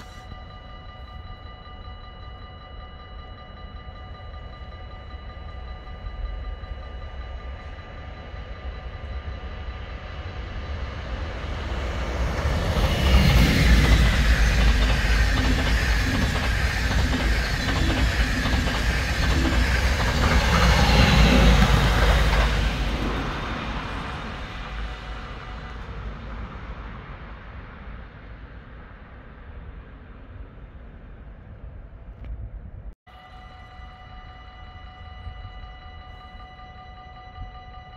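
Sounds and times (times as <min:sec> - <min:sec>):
faint steady tones: 0:00.0 - 0:31.8, 0:33.1 - 0:37.9
electric train passing: 0:00.0 - 0:32.0, 0:33.1 - 0:37.9
wheels clicking over rail joints: 0:12.3 - 0:25.0.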